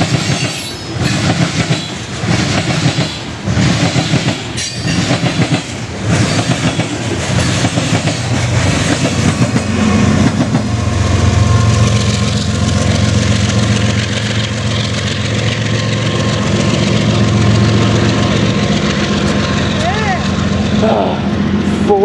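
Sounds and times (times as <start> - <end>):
freight car wheels clickety-clack: 0.0 - 10.6
diesel locomotive engine drone: 0.0 - 22.0.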